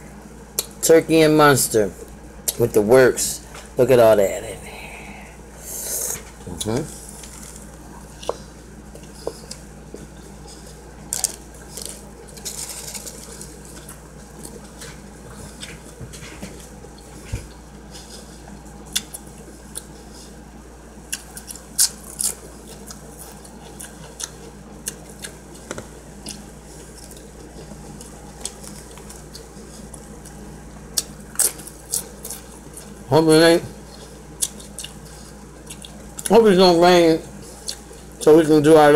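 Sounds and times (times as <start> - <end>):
steady low hum: 0.0 - 38.9
person chewing: 5.6 - 20.4, 21.0 - 33.1, 33.8 - 36.3, 37.4 - 38.2.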